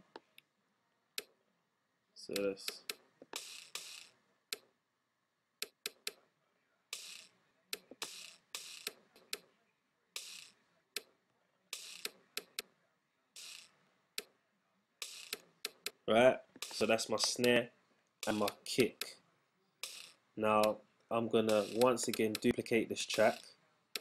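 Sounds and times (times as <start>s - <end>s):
hissy snare hits: 21.5s - 22.2s
mouse clicks: 23.1s - 24.0s.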